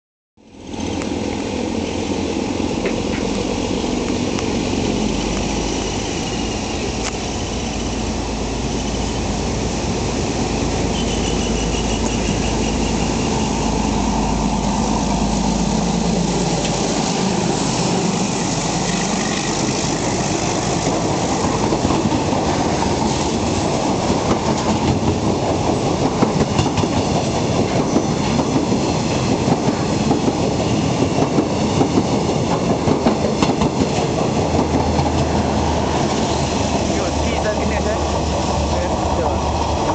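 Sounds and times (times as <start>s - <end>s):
diesel locomotive engine rumble: 0.4s - 39.9s
train wheels clacking on rail joints: 18.4s - 36.9s.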